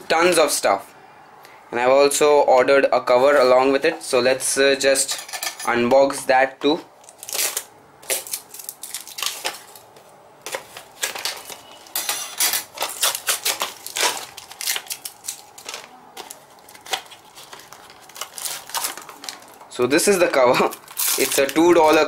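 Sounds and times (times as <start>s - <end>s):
plastic wrap crinkling: 7.0s - 22.0s.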